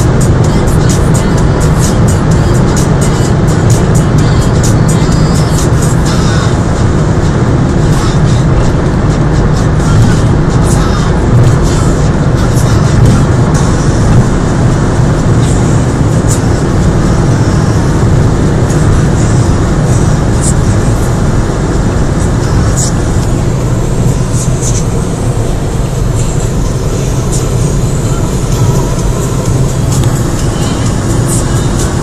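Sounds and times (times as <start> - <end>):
car engine running: 0.0 - 32.0.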